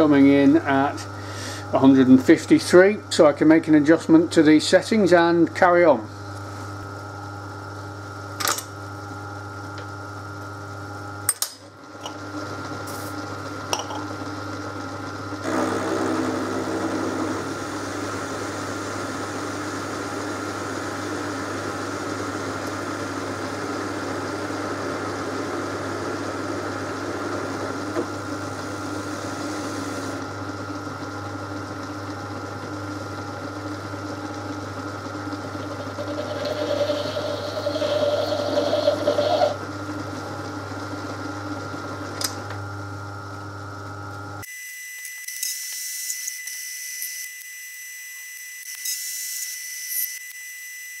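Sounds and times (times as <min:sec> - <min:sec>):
lathe cutting metal: 0:15.4 - 0:18.6, 0:35.1 - 0:39.6
metal lathe humming: 0:15.4 - 0:22.7, 0:33.9 - 0:39.7.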